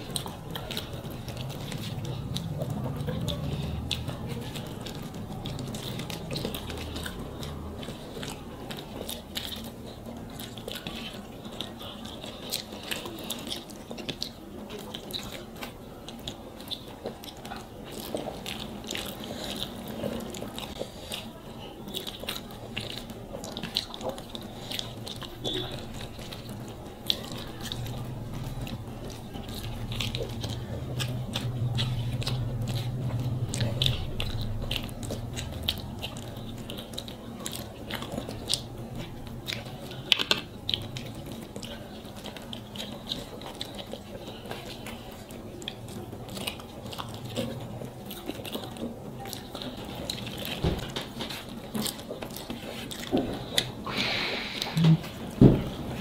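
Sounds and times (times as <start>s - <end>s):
chewing with wet smacks: 0.0s - 56.0s.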